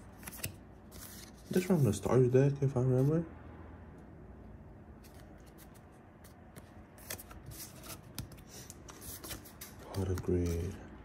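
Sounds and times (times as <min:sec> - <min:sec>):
cards rustling and clicking: 0:00.0 - 0:02.1, 0:05.0 - 0:10.9.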